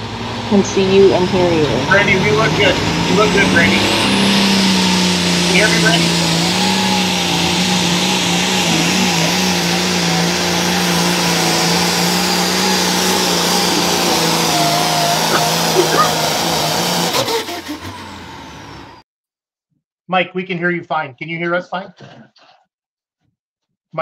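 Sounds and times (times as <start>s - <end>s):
tractor diesel engine under load: 0.0s - 19.0s.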